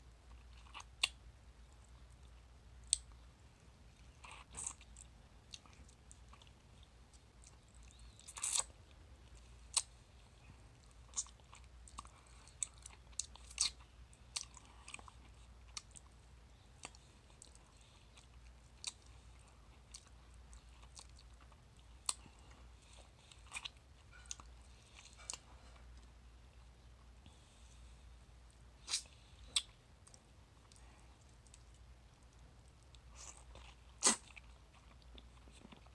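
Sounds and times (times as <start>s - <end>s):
mouth sucking and eating: 28.8s - 29.7s, 33.0s - 34.5s.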